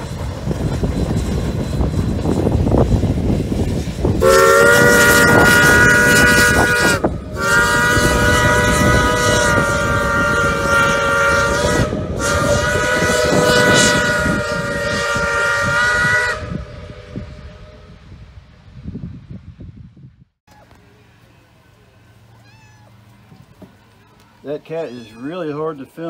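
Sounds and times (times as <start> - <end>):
train rumble: 0.0 - 24.7
steam whistle blasts: 4.2 - 18.2.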